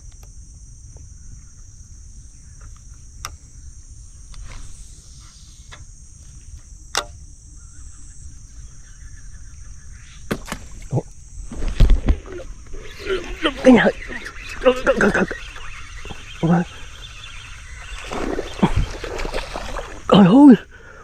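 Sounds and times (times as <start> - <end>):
high-pitched insect chorus: 0.0 - 21.0
sharp clicks and knocks: 6.9 - 7.2.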